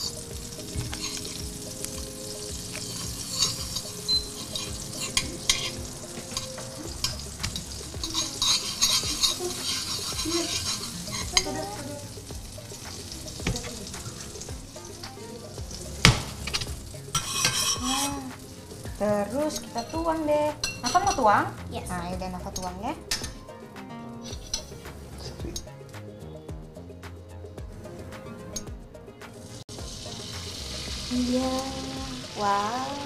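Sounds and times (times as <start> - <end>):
metal utensil scraping pan: 0.0 - 15.2, 16.0 - 21.4
butter sizzling in frying pan: 0.0 - 23.5, 29.5 - 33.0
utensil clinking against pan: 2.7 - 11.8, 16.0 - 18.3.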